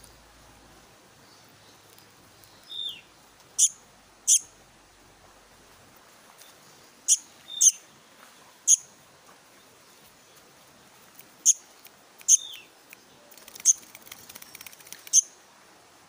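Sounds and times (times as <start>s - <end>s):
bird short high calls: 7.1s - 7.8s.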